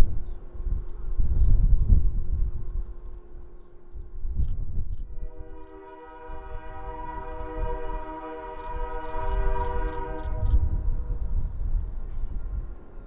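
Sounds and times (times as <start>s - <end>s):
low rumble: 0.0s - 13.0s
wind buffeting microphone: 0.0s - 13.0s
locomotive air horn blast: 5.2s - 10.8s.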